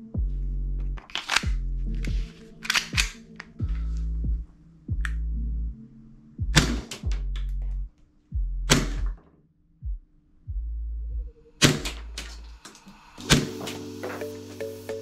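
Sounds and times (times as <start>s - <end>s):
background music with deep bass: 0.0s - 9.2s, 9.8s - 15.0s
toy pistol clacking: 1.1s - 1.5s, 2.6s - 3.5s.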